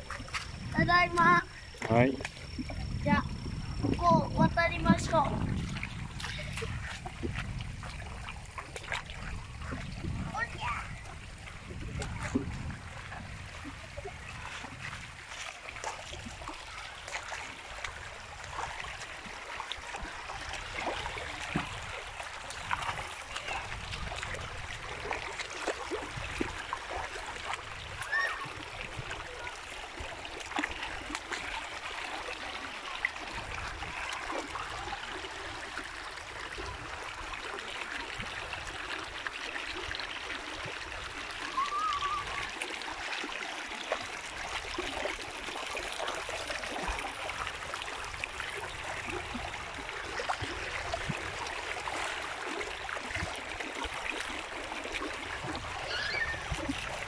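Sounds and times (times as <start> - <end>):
footsteps splashing in water: 0.0 - 2.8, 3.8 - 10.0, 14.3 - 35.2
stream trickling over rocks: 0.0 - 57.0.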